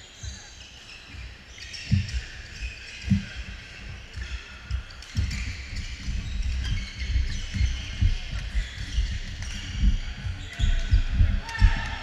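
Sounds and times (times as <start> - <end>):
thuds on wooden gym floor: 4.8 - 12.0.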